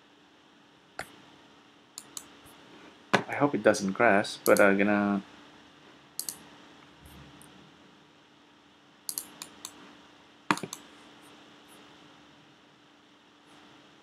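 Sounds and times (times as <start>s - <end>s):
faint steady hum: 0.0s - 14.0s
sharp computer clicks: 2.0s - 2.3s, 4.4s - 4.7s, 6.2s - 6.4s, 9.1s - 9.8s, 10.5s - 10.9s.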